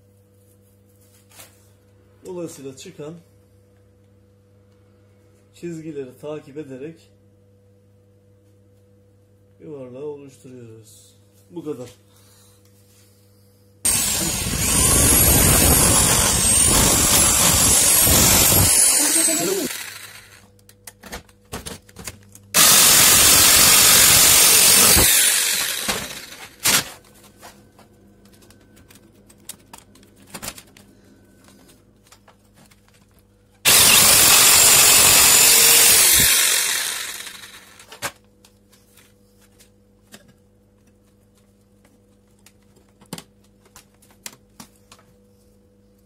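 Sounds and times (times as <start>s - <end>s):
jigsaw cutting sheet metal: 13.9s - 20.4s, 22.6s - 27.0s, 33.7s - 38.0s.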